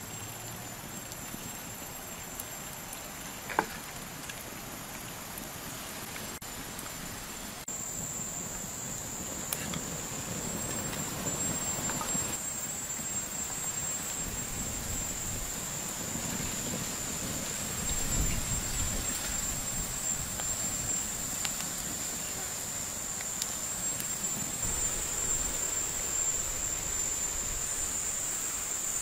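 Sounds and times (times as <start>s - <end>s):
high-pitched insect drone: 7.6s - 29.0s.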